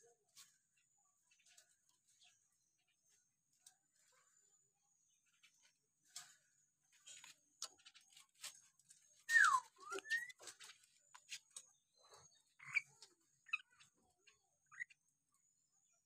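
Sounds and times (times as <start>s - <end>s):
bird chirps: 5.1s - 16.0s
myna whistling: 9.3s - 10.4s.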